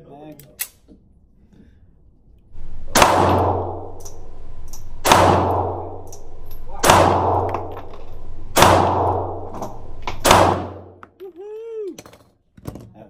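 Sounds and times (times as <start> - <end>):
pistol shots echoing indoors: 2.7 - 11.0
click: 4.0 - 4.9.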